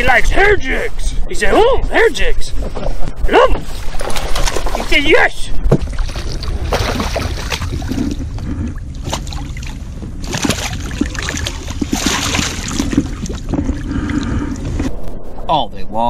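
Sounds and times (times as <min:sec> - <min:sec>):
water splashing against boat hull: 0:02.6 - 0:14.9
low rumble: 0:05.5 - 0:16.0.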